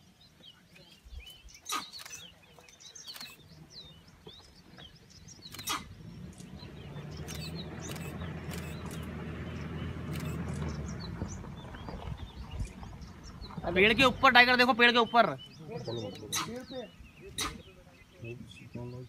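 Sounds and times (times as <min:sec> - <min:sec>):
small birds chirping: 0:00.0 - 0:19.0
sharp clicks: 0:03.0 - 0:03.4, 0:05.4 - 0:06.6, 0:07.2 - 0:09.1, 0:10.0 - 0:10.7
vehicle engine hum: 0:03.1 - 0:14.7.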